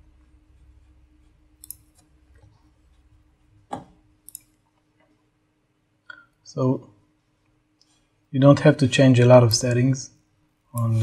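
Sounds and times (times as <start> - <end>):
faint steady hum: 0.0 - 11.0
computer mouse clicks: 1.6 - 2.1, 4.2 - 4.6.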